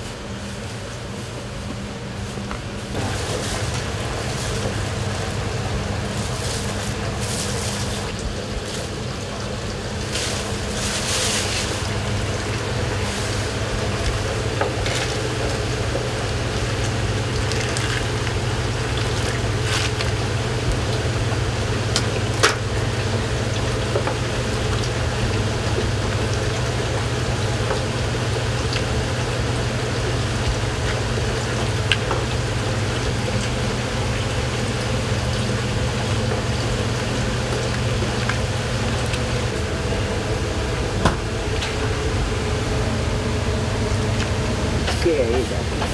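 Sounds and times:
low kitchen drone: 0.0 - 45.9
water boiling in a pot: 0.0 - 45.9.

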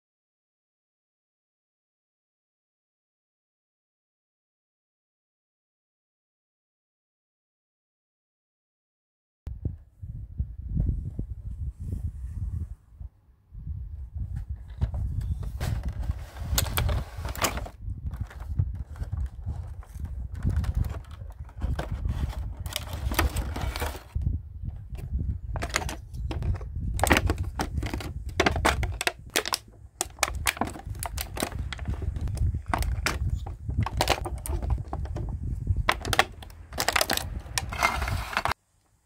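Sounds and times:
plastic packaging crinkling: 15.6 - 24.2, 27.0 - 34.9, 35.9 - 38.6
plastic toy pieces clicking: 28.4 - 31.6.

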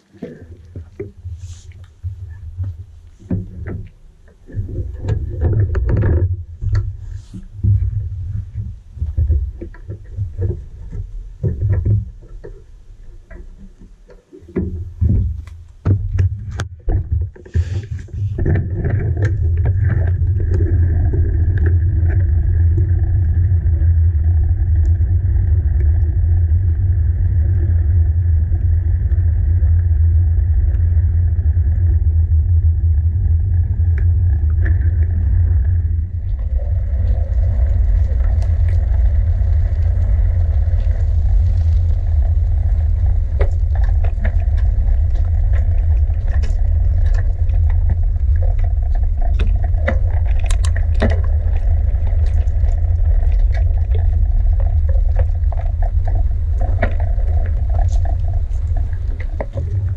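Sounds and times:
wind and road noise: 34.2 - 59.9.

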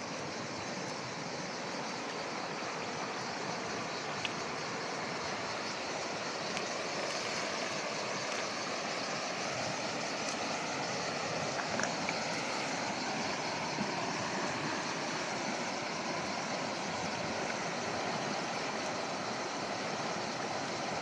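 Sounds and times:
river rushing over rocks: 0.0 - 21.0
faint clicks: 4.2 - 4.4.

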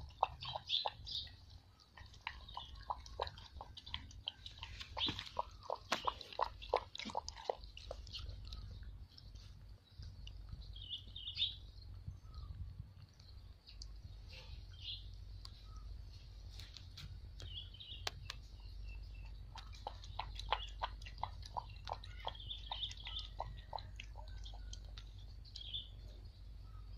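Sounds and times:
puppy lapping from plastic bowl: 0.0 - 10.9, 18.6 - 25.8
birds chirping: 0.0 - 26.9.

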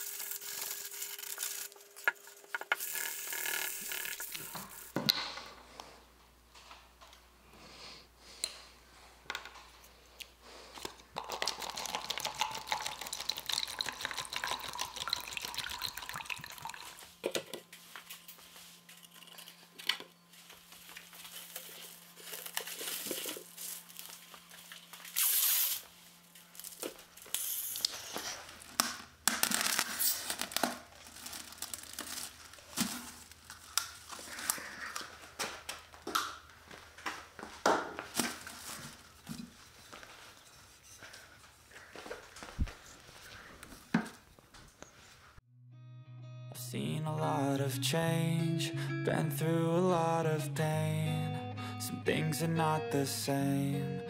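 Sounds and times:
cling film crinkling and tearing: 0.0 - 5.0, 20.7 - 35.5.

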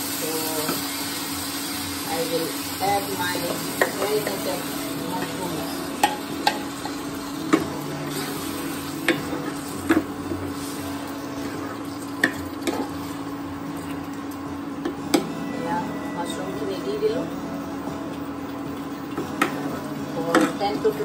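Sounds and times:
mushrooms sizzling in a pan: 0.0 - 15.8.

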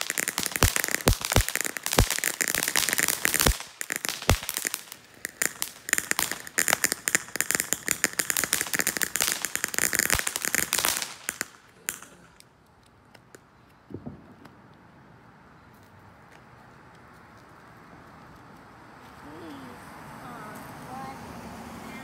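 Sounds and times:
firework crackling hiss: 0.0 - 12.4.

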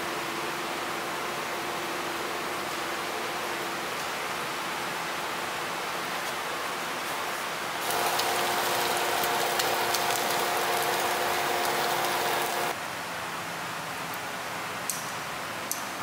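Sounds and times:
meat sizzling in a frying pan: 7.8 - 12.7
steady hum: 7.8 - 12.8.

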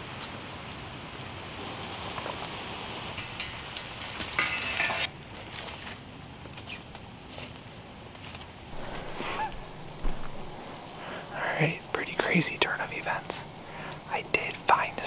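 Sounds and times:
rustling and scraping: 3.2 - 11.3
light knocks: 9.0 - 10.6.

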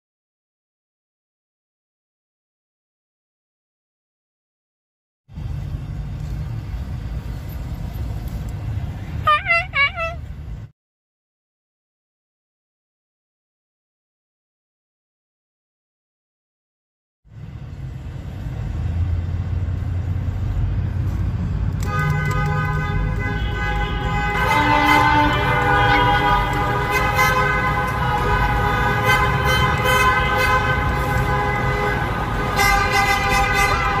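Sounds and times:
engine and road rumble: 5.3 - 10.7, 17.3 - 34.0
many car horns honking: 9.3 - 10.2, 21.8 - 34.0.

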